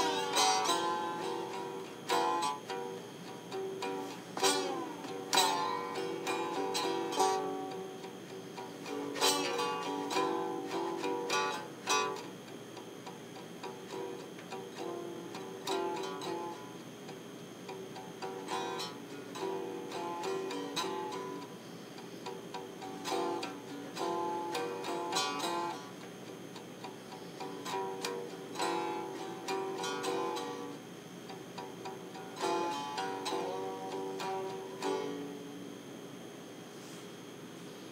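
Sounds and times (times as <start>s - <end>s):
slide guitar plucked notes: 0.0s - 21.6s, 22.2s - 35.6s.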